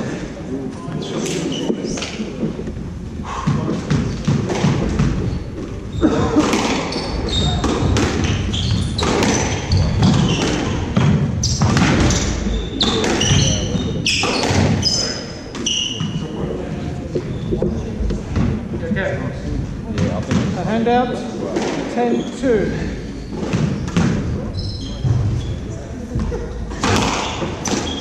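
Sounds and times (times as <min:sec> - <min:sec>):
shoes squeaking on wooden floor: 0:00.8 - 0:02.7, 0:03.3 - 0:19.0, 0:21.6 - 0:28.0
racket hitting rubber ball: 0:03.4 - 0:05.7, 0:06.3 - 0:14.9, 0:26.8 - 0:28.0.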